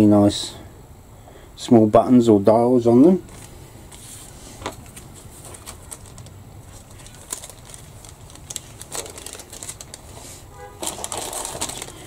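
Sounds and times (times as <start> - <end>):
plastic bag crinkling: 4.2 - 12.0
plastic clicks and crackles: 4.6 - 10.0, 10.8 - 12.0.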